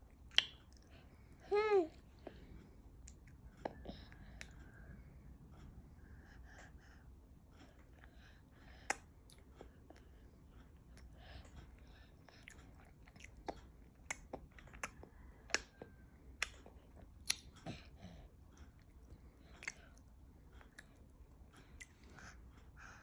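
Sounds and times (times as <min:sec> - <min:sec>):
baby chewing with lip smacks: 0:00.1 - 0:01.1, 0:03.0 - 0:04.8, 0:07.6 - 0:23.0.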